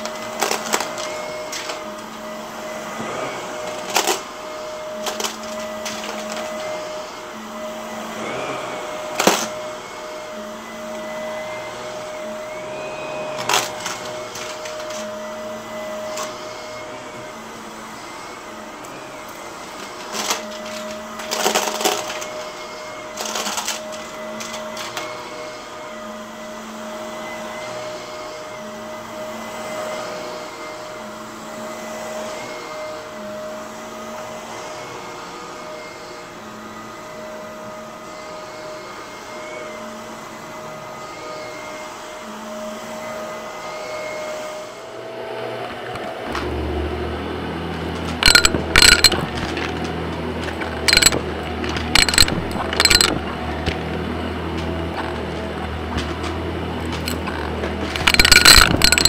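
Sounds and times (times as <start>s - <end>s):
vacuum cleaner deep hum: 0.0s - 58.5s
vacuum cleaner whining: 0.0s - 59.0s
coins rattling through vacuum: 48.2s - 49.7s, 50.6s - 53.5s, 56.9s - 57.3s, 57.9s - 59.0s.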